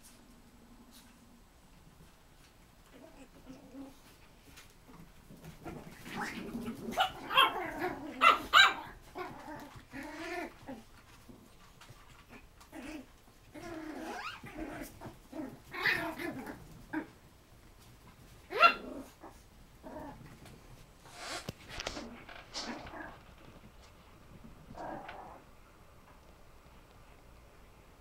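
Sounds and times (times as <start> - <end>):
puppies growling and yapping: 2.8 - 23.7, 24.3 - 25.6.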